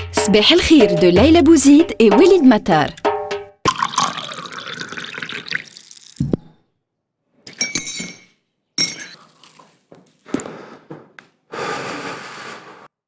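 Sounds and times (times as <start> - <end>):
drink pouring into glass mug: 3.7 - 6.5
glassy clinks: 7.5 - 9.3.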